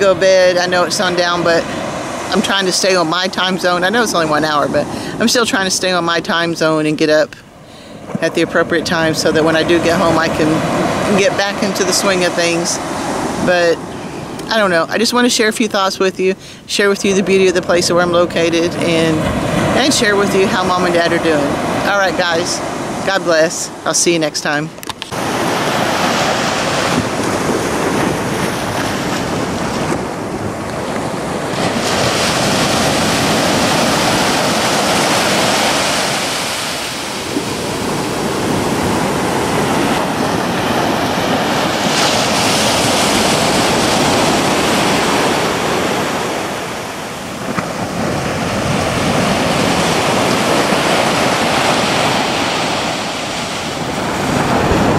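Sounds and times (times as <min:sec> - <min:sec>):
ocean surf breaking: 0:00.0 - 0:54.9
wind on microphone: 0:16.8 - 0:54.9.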